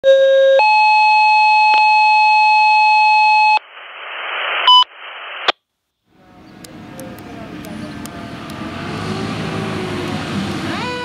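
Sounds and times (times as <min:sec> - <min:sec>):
radio paging tones: 0:01.5 - 0:05.6
radio static: 0:03.4 - 0:08.5.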